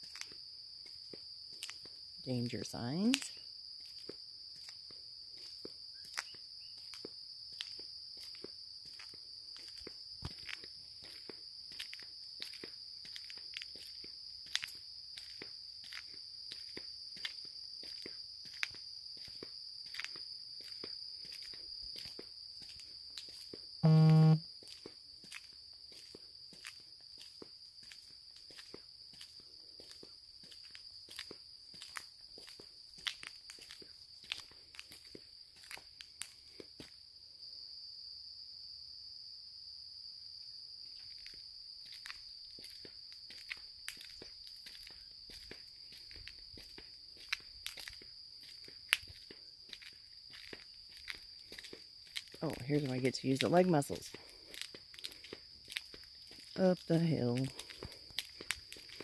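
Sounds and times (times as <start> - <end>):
soft footsteps on trail: 0.0 - 2.2, 3.1 - 23.8, 24.6 - 37.0, 41.0 - 59.0
high-pitched insect drone: 23.8 - 24.4
footsteps walking: 41.9 - 52.6, 54.2 - 56.6, 57.4 - 59.0.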